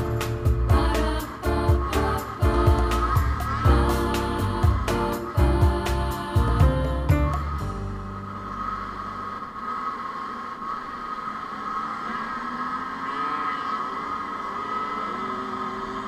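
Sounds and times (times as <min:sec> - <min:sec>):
two-stroke engine buzzing: 0:11.5 - 0:16.0.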